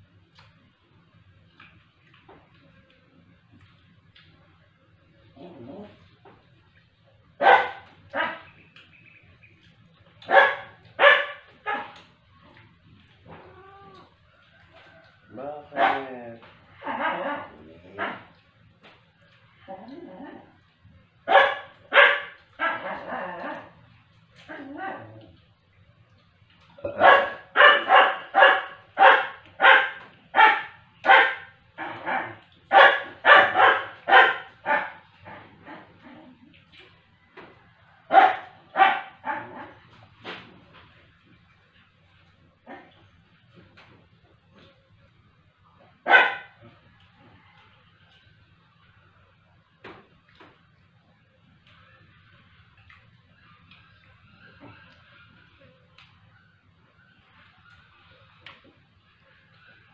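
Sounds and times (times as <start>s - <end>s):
dog barking: 7.4s - 8.6s, 10.2s - 12.0s, 15.7s - 16.2s, 16.8s - 18.4s, 21.3s - 23.7s, 26.9s - 36.0s, 38.1s - 39.8s, 42.7s - 43.0s, 46.0s - 46.8s.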